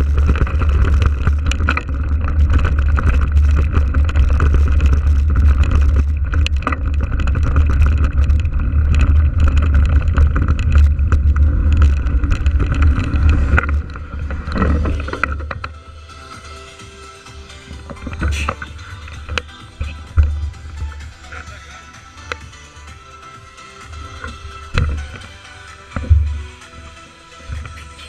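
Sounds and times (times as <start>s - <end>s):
bike knocks and rattles: 0.0s - 15.9s, 17.7s - 23.0s, 23.8s - 28.0s
wind rumbling on microphone: 0.0s - 16.0s.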